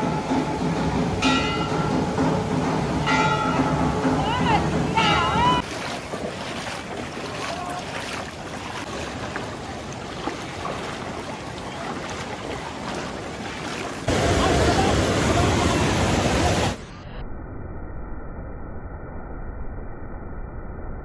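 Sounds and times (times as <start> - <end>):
flood water rushing over rocks: 3.1 - 16.9
feet wading through shallow water: 4.2 - 16.8.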